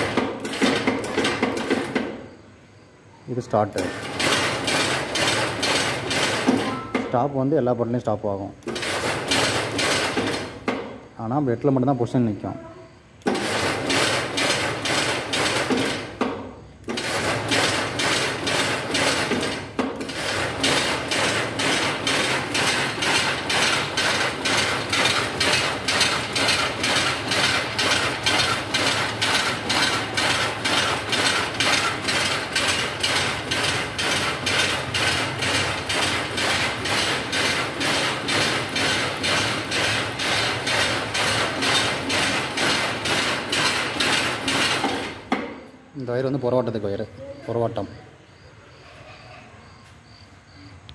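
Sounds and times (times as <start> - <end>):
power loom clattering: 0.0 - 2.2, 3.8 - 7.3, 8.6 - 11.0, 13.2 - 45.7.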